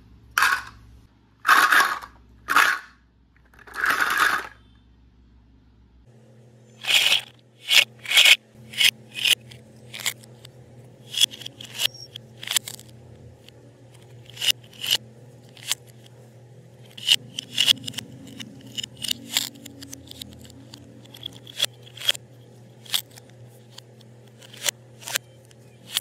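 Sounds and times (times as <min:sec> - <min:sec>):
faint low hum: 0:00.0 - 0:26.0
plastic pieces knocking together: 0:00.4 - 0:00.8, 0:01.5 - 0:04.6
plastic toy knife rasping: 0:06.8 - 0:13.0, 0:13.9 - 0:16.1, 0:16.8 - 0:22.2, 0:22.8 - 0:25.2.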